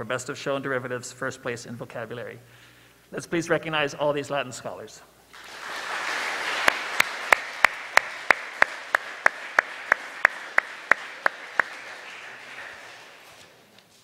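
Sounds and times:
audience applause: 0:05.3 - 0:13.7
loud even claps: 0:05.3 - 0:13.7.

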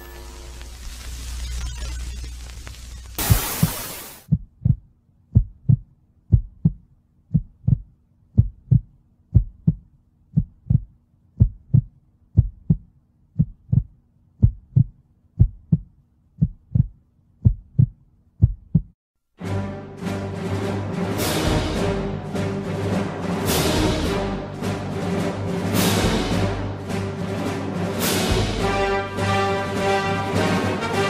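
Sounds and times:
heartbeat double thump: 0:04.3 - 0:19.0.

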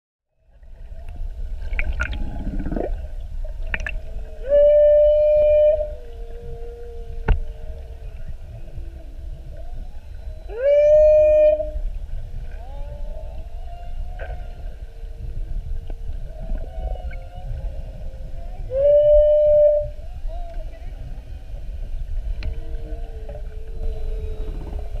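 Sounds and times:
low water rumble: 0:00.3 - 0:25.0
whale calls: 0:00.7 - 0:25.0
low moans and grunts: 0:02.1 - 0:03.1.

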